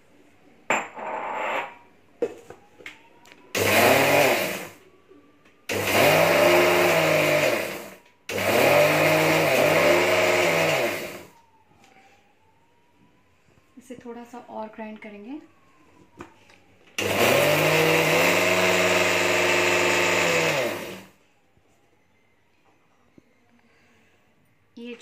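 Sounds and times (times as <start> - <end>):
mixer grinder grinding: 3.6 - 4.8, 5.7 - 11.3, 17.0 - 21.1.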